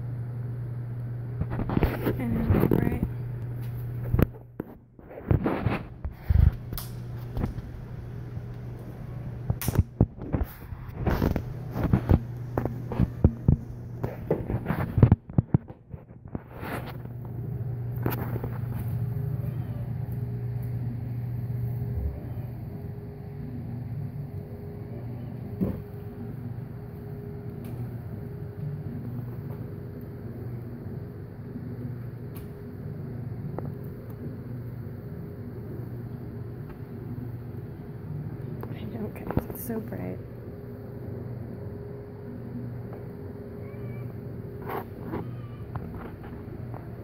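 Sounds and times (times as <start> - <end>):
steady low hum: 0.0 - 47.0.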